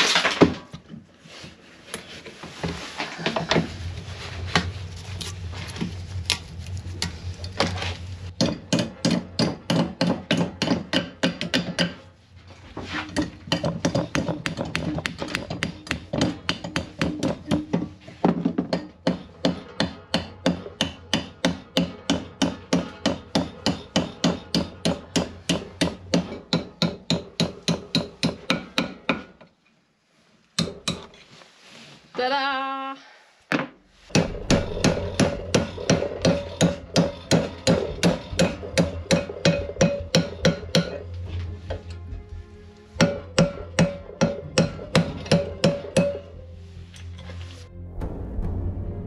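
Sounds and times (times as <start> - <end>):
hammer striking metal: 8.3 - 12.1, 13.2 - 17.9, 18.6 - 29.3, 34.1 - 41.2, 43.0 - 46.5.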